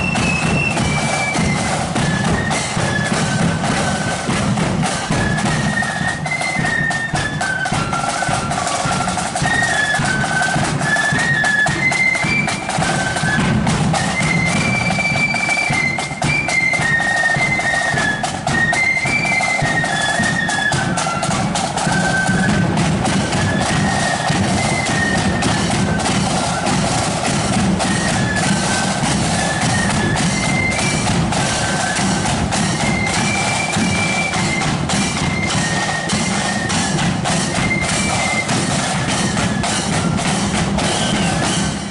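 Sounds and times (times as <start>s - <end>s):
flutes playing melody: 0.0s - 41.9s
side drum and bass drum beats: 0.0s - 41.9s.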